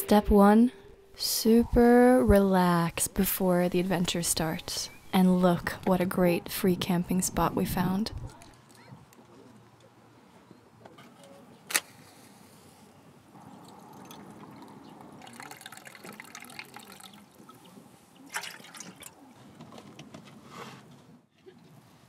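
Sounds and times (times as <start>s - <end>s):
liquid pouring and dripping: 13.6s - 19.2s.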